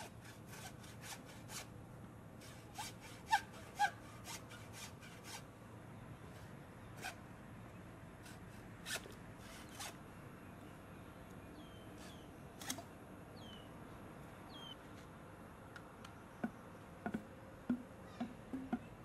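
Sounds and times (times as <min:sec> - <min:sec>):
hacksaw cutting bamboo: 0:00.0 - 0:01.7, 0:02.4 - 0:05.4, 0:07.0 - 0:07.2, 0:08.2 - 0:10.0
knocks of bamboo being handled: 0:15.8 - 0:19.0.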